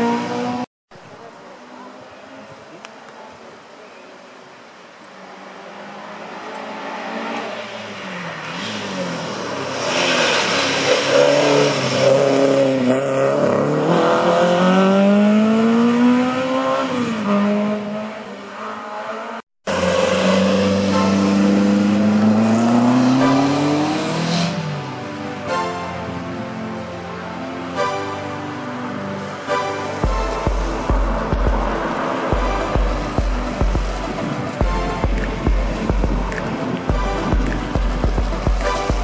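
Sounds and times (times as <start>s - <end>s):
race car engine revving: 5.6s - 24.8s.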